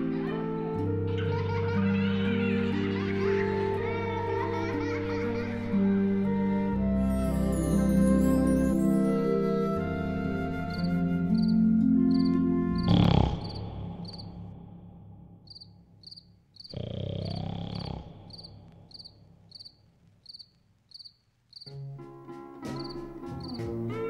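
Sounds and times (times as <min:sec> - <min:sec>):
music: 0:00.0 - 0:15.2, 0:21.7 - 0:24.0
crickets chirping: 0:10.7 - 0:21.8, 0:22.8 - 0:23.7.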